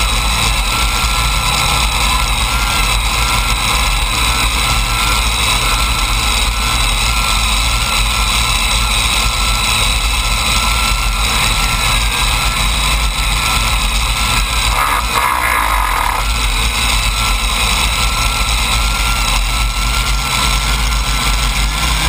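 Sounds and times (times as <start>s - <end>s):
engines idling: 9.7s - 22.0s.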